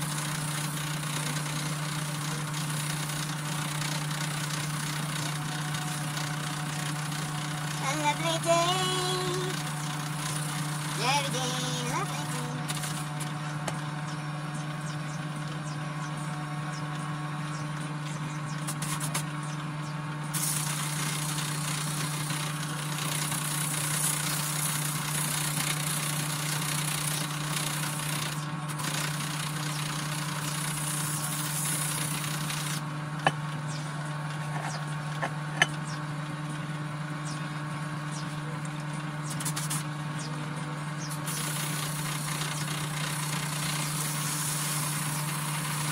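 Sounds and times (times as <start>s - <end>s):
electric drill motor hum: 0.0s - 13.8s, 20.4s - 33.5s.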